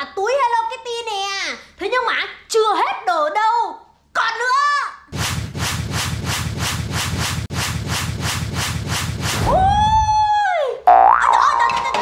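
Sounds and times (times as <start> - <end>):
fast even scratching: 5.1 - 10.1
whistle-like rising tone: 9.4 - 10.3.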